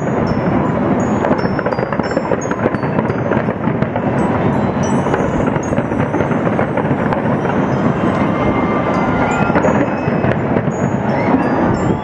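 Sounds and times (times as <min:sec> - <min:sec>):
fireworks crackling and banging: 0:00.0 - 0:12.0
high whistling tones: 0:04.2 - 0:12.0.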